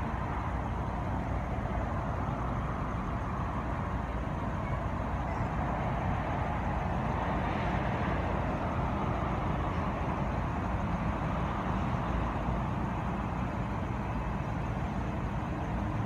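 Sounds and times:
road traffic rumble and hiss: 0.0s - 16.0s.

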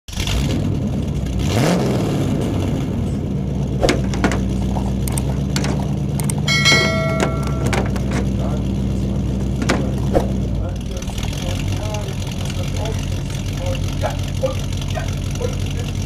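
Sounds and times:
bulldozer engine running: 0.1s - 16.0s
sharp clicks: 5.0s - 6.5s
bright ringing chime: 6.5s - 8.0s.

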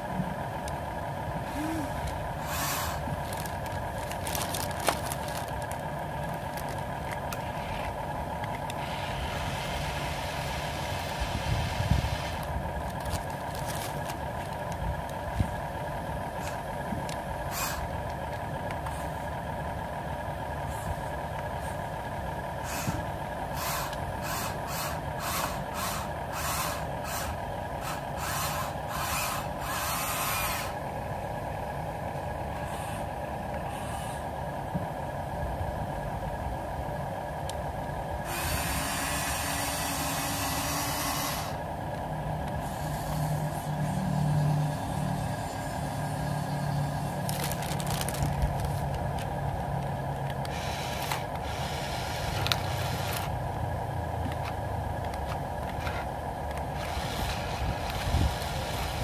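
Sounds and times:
toy excavator electric hum: 0.0s - 34.7s, 35.3s - 59.0s
motors whirring: 1.4s - 15.5s, 16.4s - 19.1s, 22.6s - 30.8s, 38.2s - 41.7s, 42.4s - 53.5s, 54.2s - 59.0s.

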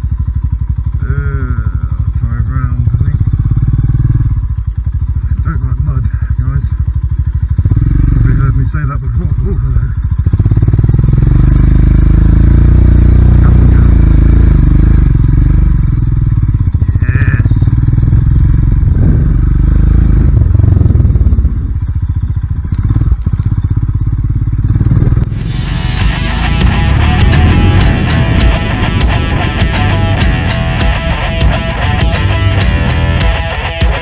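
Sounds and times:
motorcycle engine revving: 0.0s - 34.0s
rock music: 25.3s - 34.0s.

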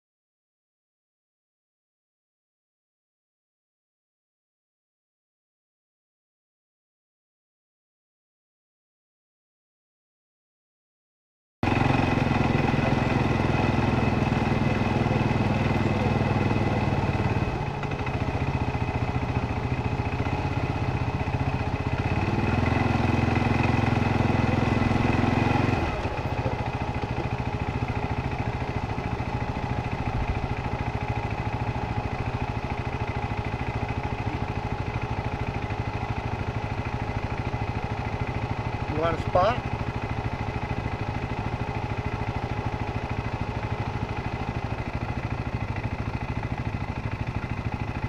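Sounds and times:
quad bike engine revving: 11.6s - 48.0s.

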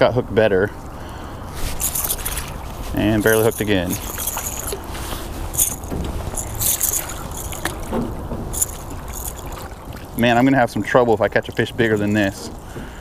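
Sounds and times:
fish splashing at water surface: 1.5s - 10.2s.

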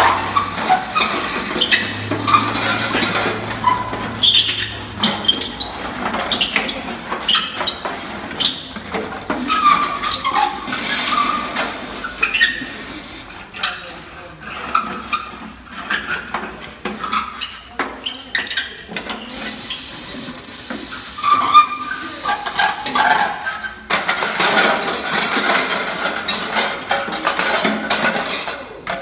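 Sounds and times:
stick scraping brass pot: 0.0s - 13.7s.

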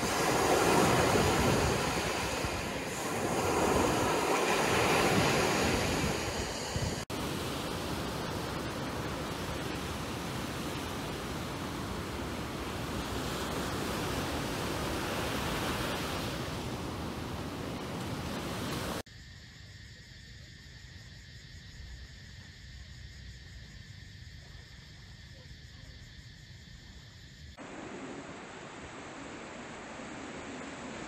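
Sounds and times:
surf breaking on sandy beach: 0.0s - 19.0s, 27.6s - 31.0s
evening insects chorus: 0.0s - 28.8s.

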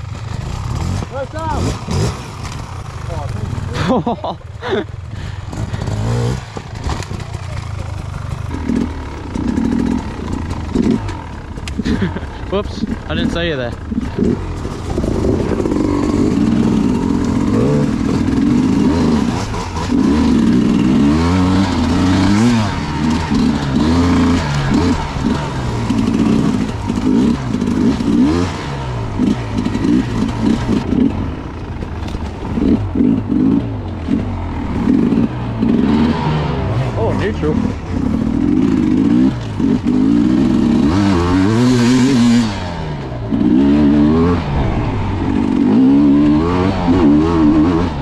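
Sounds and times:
dirt bike engine revving: 0.0s - 48.0s.

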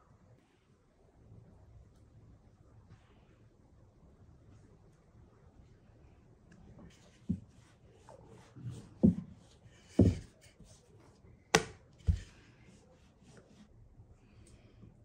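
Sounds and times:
rolling pin knocking on wood: 9.9s - 10.3s, 11.6s - 12.3s.

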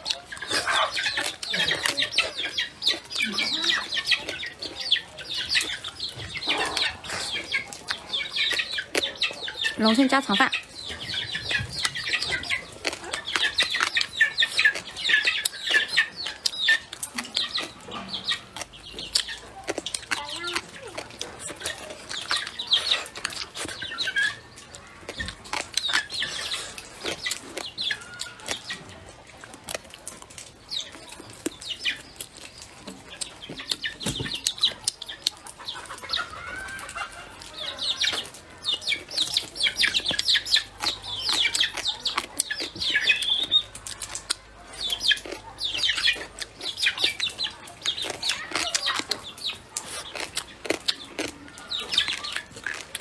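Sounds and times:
chewing and lip-smacking: 0.0s - 53.0s
wet crunchy clicks: 11.7s - 36.1s, 36.8s - 53.0s.

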